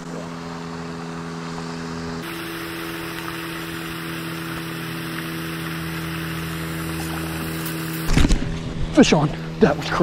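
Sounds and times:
steady hiss: 2.2 - 8.1.

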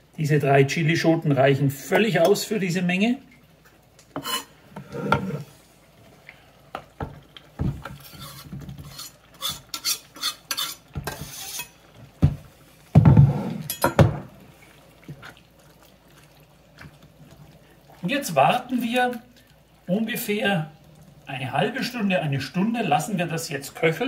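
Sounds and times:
wooden spoon scraping pot: 4.2 - 5.6, 7.8 - 11.8.

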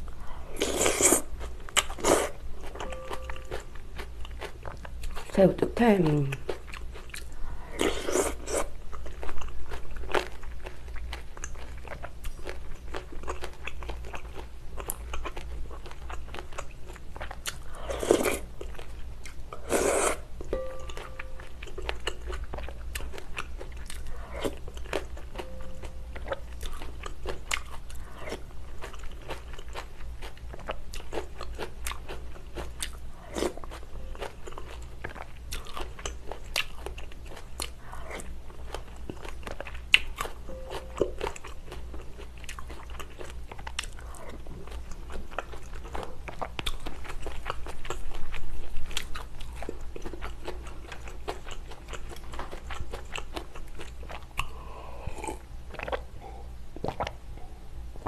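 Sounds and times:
person chewing: 0.0 - 5.3, 6.4 - 57.2
slurping broth: 19.6 - 20.3.

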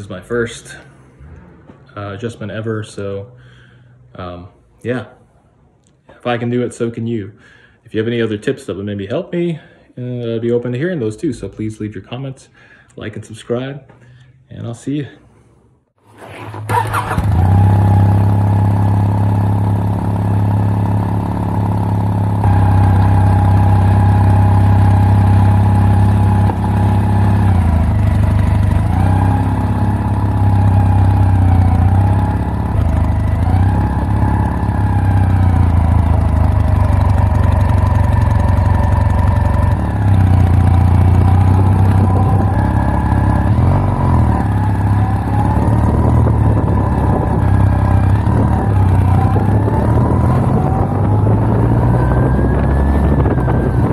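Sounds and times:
motorcycle engine running: 16.2 - 53.9.

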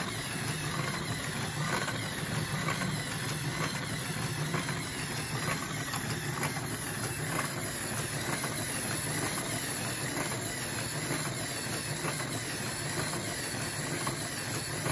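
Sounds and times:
machine running with low hum: 0.0 - 14.9.

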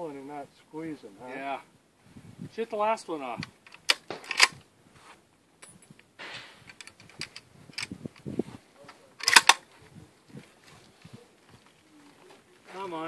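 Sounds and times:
rifle bolt clicking and clacking: 3.6 - 4.6, 6.2 - 7.9, 9.2 - 9.6.

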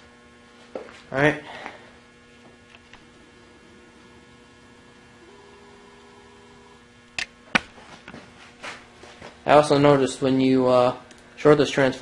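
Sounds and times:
electrical mains hum: 0.0 - 12.0
higher electrical tone: 1.0 - 12.0.

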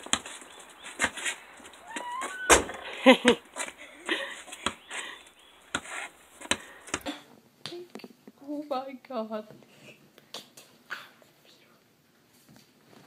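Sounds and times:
basketball bouncing on concrete: 0.0 - 1.2, 4.5 - 4.9, 5.7 - 7.1
brief pitched cry: 1.8 - 2.7.

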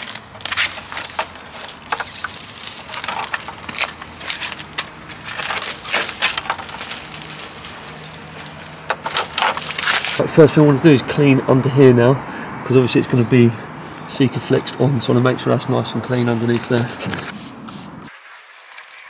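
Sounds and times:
plastic film peeling and crackling: 0.0 - 10.4.

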